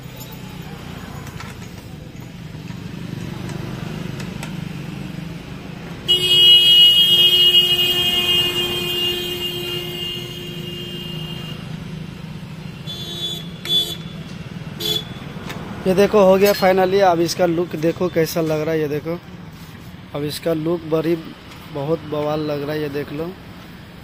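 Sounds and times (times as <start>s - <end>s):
traffic hum: 0.0s - 24.0s
long horn blast: 6.0s - 11.7s.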